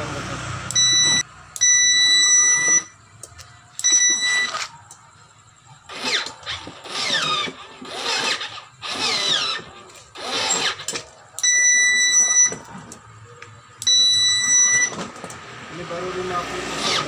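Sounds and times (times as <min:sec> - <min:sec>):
steady electronic beep: 0:00.7 - 0:03.0, 0:03.8 - 0:04.6, 0:11.4 - 0:12.6, 0:13.8 - 0:15.0.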